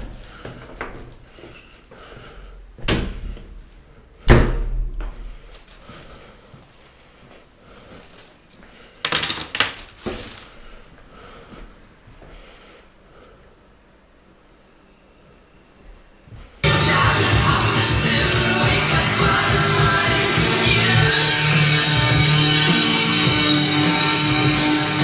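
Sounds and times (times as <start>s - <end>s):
keys jangling: 5.5s - 6.0s, 7.8s - 10.5s, 14.5s - 16.6s.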